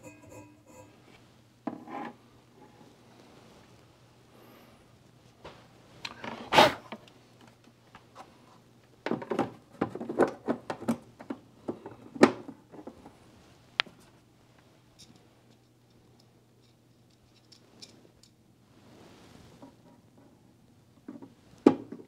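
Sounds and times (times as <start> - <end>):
plastic knocking and clattering: 9.0 - 13.0, 21.0 - 22.0.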